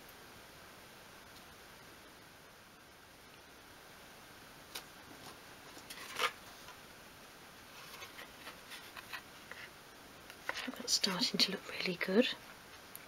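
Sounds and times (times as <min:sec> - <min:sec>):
soft ticks and rustles: 0:07.7 - 0:13.0.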